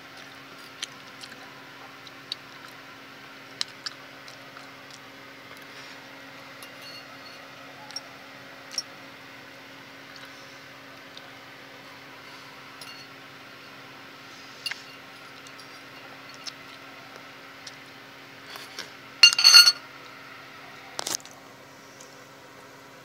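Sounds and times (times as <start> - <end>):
faint steady hum: 0.0 - 23.0
fork clinking on a ceramic plate: 19.2 - 19.8.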